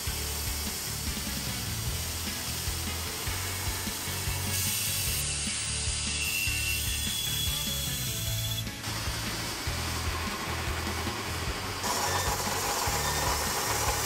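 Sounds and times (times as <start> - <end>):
small engine running: 0.0 - 14.0
bandsaw blade sawing log: 0.9 - 14.0.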